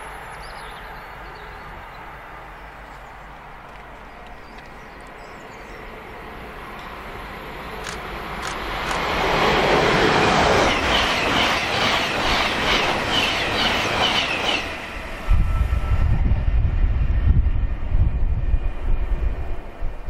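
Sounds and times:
train passing at speed: 0:00.0 - 0:20.0
wind buffeting microphone: 0:08.7 - 0:20.0.

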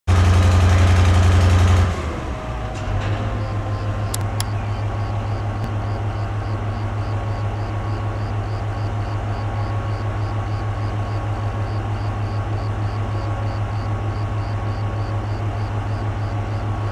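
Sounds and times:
diesel locomotive idling: 0:00.1 - 0:16.9
short clicks: 0:04.1 - 0:04.6.

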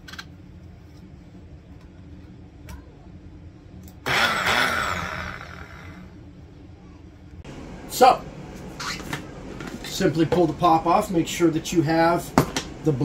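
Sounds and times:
blender motor running: 0:04.0 - 0:06.1.

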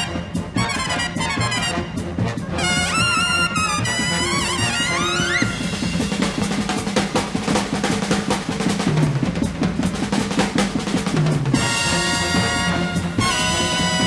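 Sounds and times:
trumpet glissando: 0:00.0 - 0:05.7, 0:11.6 - 0:14.0
jazz drum kit break: 0:00.0 - 0:14.0.

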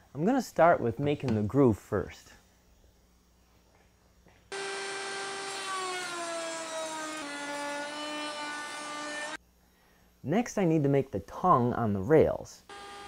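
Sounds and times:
router cutting wood: 0:04.5 - 0:09.4, 0:12.7 - 0:13.0.

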